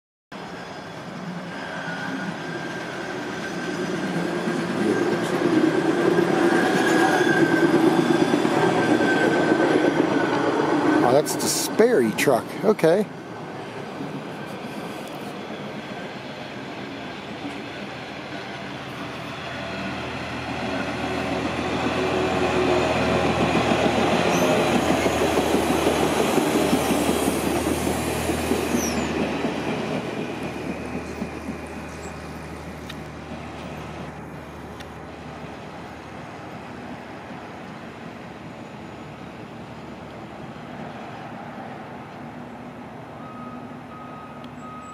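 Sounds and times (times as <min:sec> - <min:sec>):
truck running along rail track: 0:00.3 - 0:44.9
wheels squeaking on rail: 0:00.4 - 0:11.6, 0:13.4 - 0:34.4, 0:37.5 - 0:41.3, 0:43.2 - 0:44.9.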